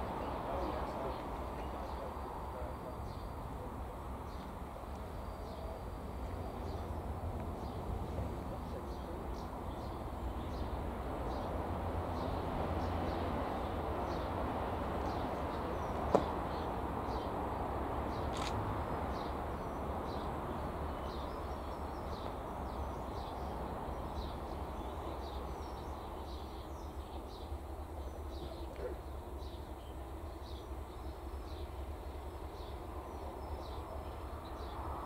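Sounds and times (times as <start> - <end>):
distant diesel locomotive rumble: 0.0 - 35.0
small birds chirping: 4.2 - 11.6, 18.1 - 35.0.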